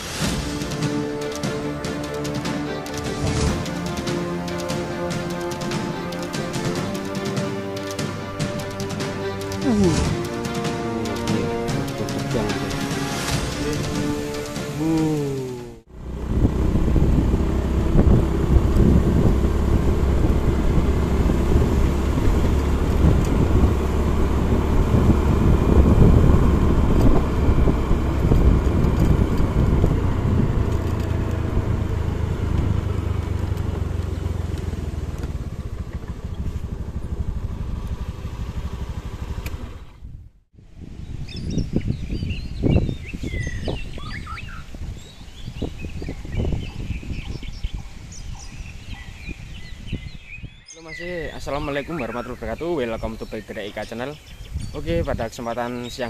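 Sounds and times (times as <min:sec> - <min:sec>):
background music: 0:00.0 - 0:15.9
motorcycle engine running: 0:00.0 - 0:40.3
rushing wind and road noise: 0:00.0 - 0:55.9.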